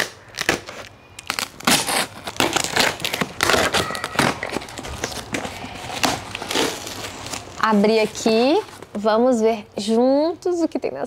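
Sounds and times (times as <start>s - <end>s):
scissors cutting plastic mailer: 0.0s - 7.5s
plastic packaging crinkling: 0.0s - 9.1s.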